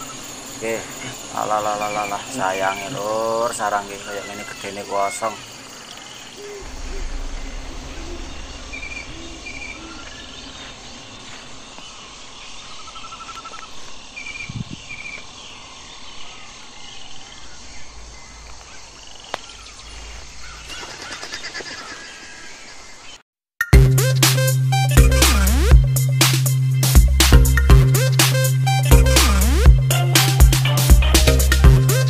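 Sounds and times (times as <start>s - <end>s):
bird chirps and trills: 0.0s - 23.1s
insects hissing: 0.0s - 23.2s, 25.6s - 32.0s
low rumble on microphone: 6.5s - 11.8s.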